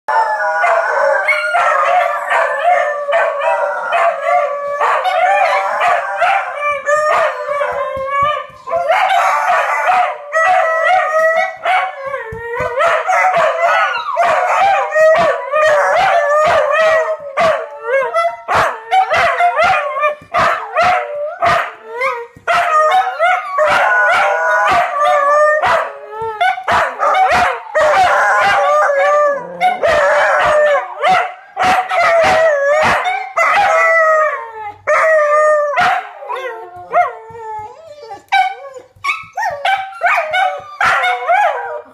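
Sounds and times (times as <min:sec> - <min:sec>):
dogs howling: 0:00.1 - 0:41.9
dogs barking: 0:00.6 - 0:07.8, 0:08.6 - 0:11.9, 0:12.8 - 0:17.7, 0:22.5 - 0:25.9, 0:26.6 - 0:33.9, 0:35.8 - 0:37.2, 0:38.3 - 0:41.8.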